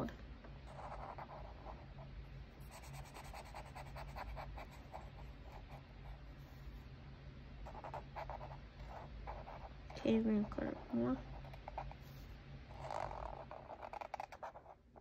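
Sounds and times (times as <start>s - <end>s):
marker scratching over paper: 0.7s - 1.8s, 2.7s - 5.8s, 7.7s - 9.7s, 10.7s - 15.0s.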